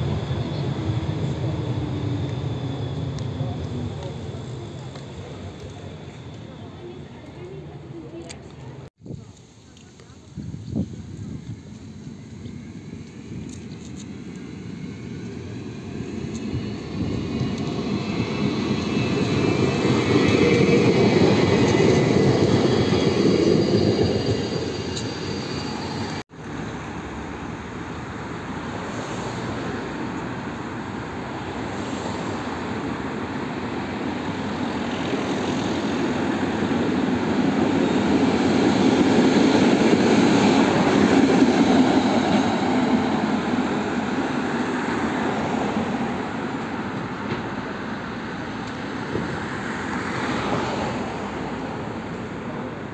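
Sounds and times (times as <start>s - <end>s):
tram motor whine: 0.0s - 8.8s, 10.5s - 28.0s
tram rumbling over rails: 0.0s - 9.2s, 10.1s - 52.9s
street traffic: 0.0s - 52.9s.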